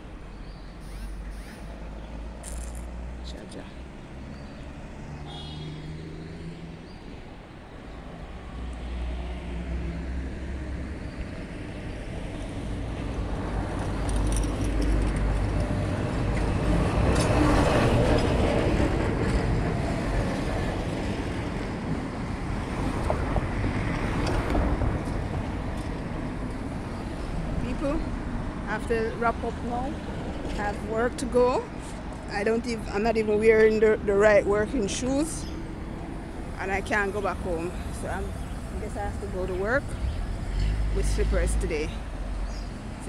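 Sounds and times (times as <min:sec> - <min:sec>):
vehicle passing: 0:00.8 - 0:07.3.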